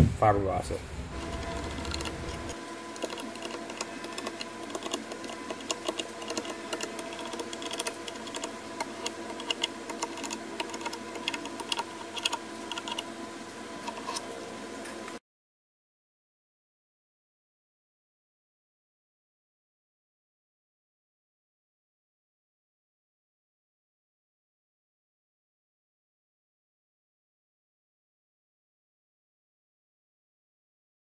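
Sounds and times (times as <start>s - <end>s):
faint steady hum: 0.0s - 15.2s.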